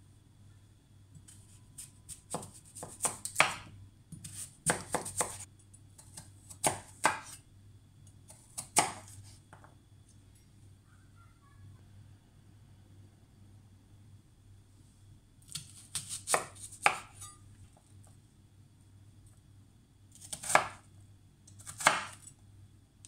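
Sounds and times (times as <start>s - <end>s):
knife chopping on wooden board: 2.1s - 5.4s, 6.1s - 7.4s, 8.3s - 9.6s, 15.5s - 17.3s, 20.3s - 20.8s, 21.6s - 22.2s.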